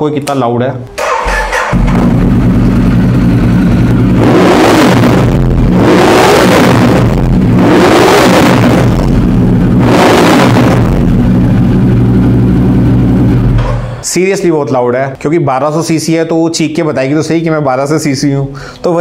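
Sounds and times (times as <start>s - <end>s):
motorcycle engine idling and revving: 1.0s - 13.9s.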